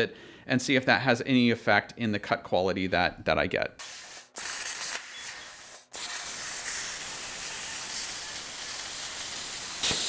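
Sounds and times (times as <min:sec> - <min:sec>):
plasma torch hissing: 0:03.8 - 0:10.0.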